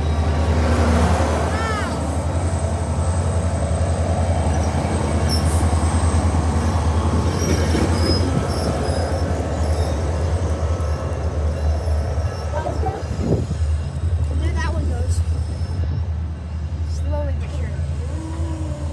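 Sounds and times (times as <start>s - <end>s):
train wheels rumbling on rail: 0.0s - 18.9s
high wheel squeaks: 4.3s - 16.8s.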